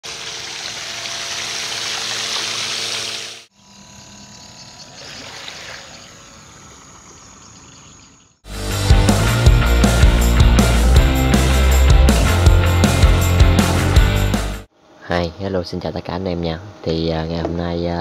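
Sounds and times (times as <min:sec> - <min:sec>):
water jet hissing: 0:00.0 - 0:03.5.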